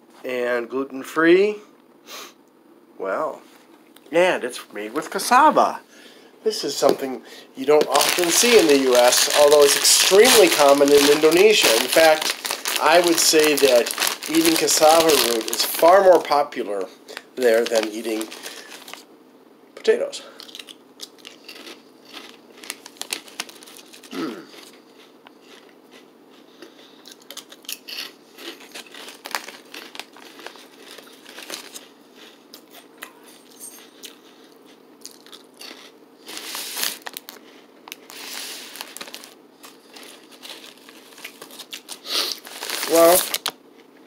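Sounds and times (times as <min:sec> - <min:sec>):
crinkling snack bag: 0:06.8 - 0:19.1, 0:20.4 - 0:24.8, 0:26.7 - 0:32.9, 0:35.0 - 0:43.6
chips crunching while eaten: 0:07.6 - 0:16.4, 0:17.1 - 0:19.0, 0:20.4 - 0:33.0, 0:34.0 - 0:43.9.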